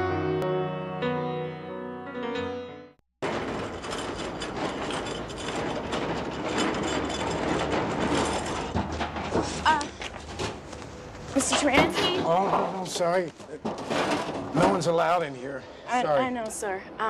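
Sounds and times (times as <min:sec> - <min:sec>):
piano music: 0:00.0 - 0:03.0
cleaning cart rattling: 0:03.2 - 0:10.7.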